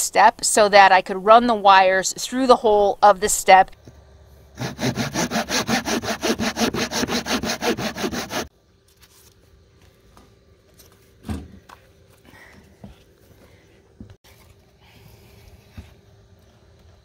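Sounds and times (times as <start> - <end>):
hand saw cutting wood: 4.6 - 8.5.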